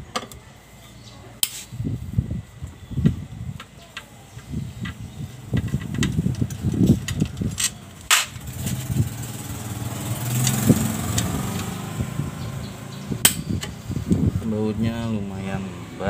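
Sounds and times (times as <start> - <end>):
engine running: 5.4 - 16.0
sharp metallic clack: 13.2 - 13.5.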